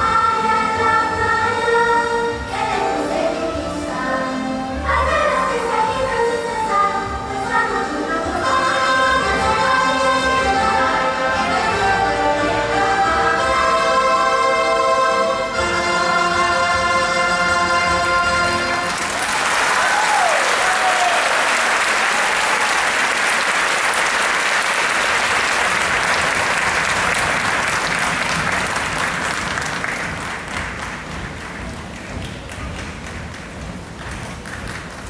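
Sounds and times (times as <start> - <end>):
audience applauding: 18.7 - 35.0
short call over applause: 18.9 - 28.0.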